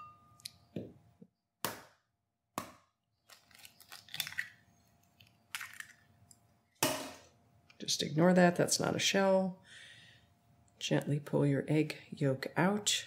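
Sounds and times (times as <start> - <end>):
eggshell crackling: 3.2 - 6.4.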